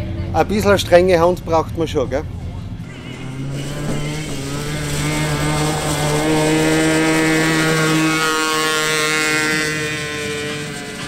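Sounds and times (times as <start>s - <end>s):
buggy engine at high revs: 2.8s - 11.0s.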